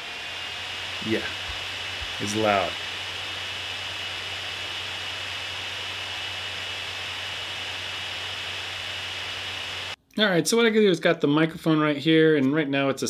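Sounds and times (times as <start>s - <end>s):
high-pitched whine: 0.0s - 10.0s
laptop cooling fan whirring: 0.0s - 10.0s.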